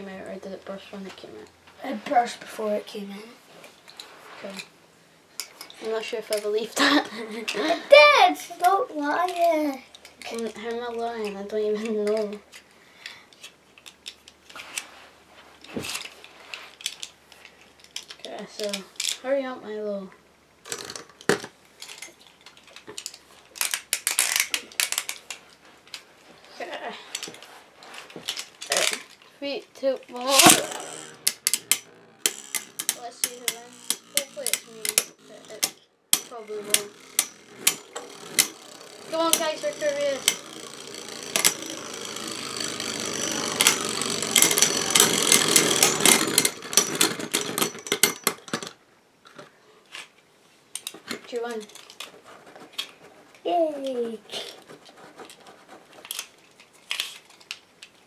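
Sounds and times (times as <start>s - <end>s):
spinning tops whirring: 30.1s - 48.4s
spinning tops clacking: 30.2s - 48.7s.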